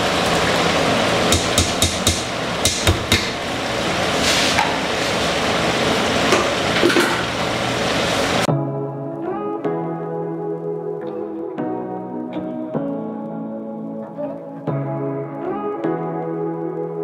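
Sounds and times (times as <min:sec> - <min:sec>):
colander and spoon knocking on pot: 0:01.3 - 0:03.4.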